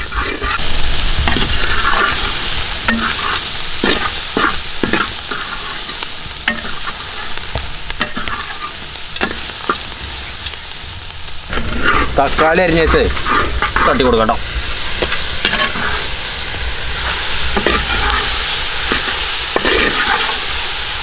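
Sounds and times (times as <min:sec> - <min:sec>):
spatula scraping clay pot: 0:00.0 - 0:00.6, 0:11.5 - 0:14.4, 0:15.0 - 0:16.0, 0:17.0 - 0:18.3, 0:18.9 - 0:20.4
food sizzling in oil: 0:00.0 - 0:21.0.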